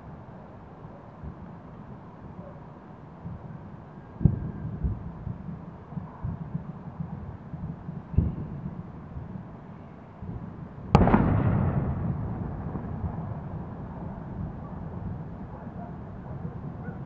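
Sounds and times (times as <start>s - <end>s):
rumble and crackle: 0.0s - 9.6s, 10.2s - 17.0s
steady low rumble: 10.3s - 17.0s
sharp explosion bang: 10.9s - 15.2s.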